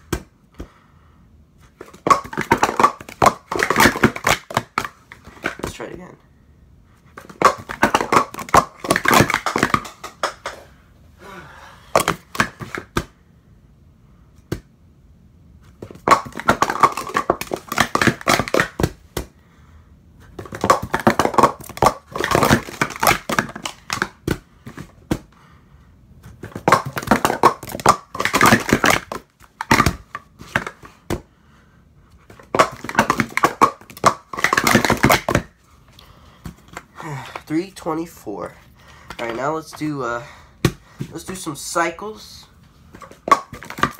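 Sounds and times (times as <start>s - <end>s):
plastic cups clattering: 1.8s - 5.8s, 7.2s - 10.6s, 15.8s - 19.0s, 20.4s - 24.9s, 26.4s - 30.9s, 32.3s - 35.5s, 39.1s - 39.9s, 43.0s - 43.9s.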